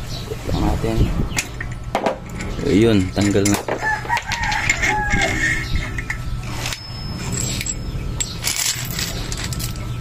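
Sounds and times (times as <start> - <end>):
metal parts clinking: 2.2 - 10.0.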